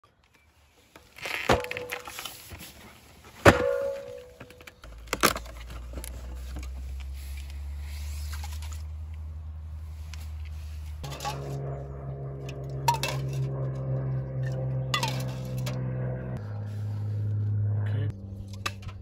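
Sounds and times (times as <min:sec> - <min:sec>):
steady low hum: 0:03.6 - 0:19.0
metallic ring of cans: 0:11.0 - 0:11.6, 0:12.4 - 0:13.5, 0:15.0 - 0:15.8.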